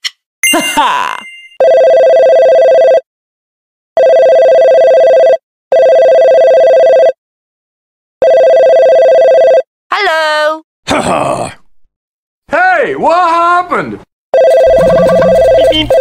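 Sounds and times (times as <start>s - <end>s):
two-tone electronic signal: 14.4s - 16.0s.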